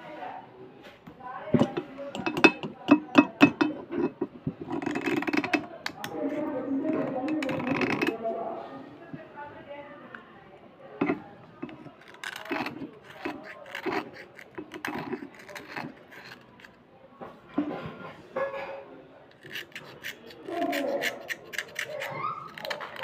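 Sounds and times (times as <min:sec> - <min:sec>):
knife scraping slate pencil: 0:01.6 - 0:08.2, 0:11.0 - 0:16.8, 0:19.3 - 0:23.0.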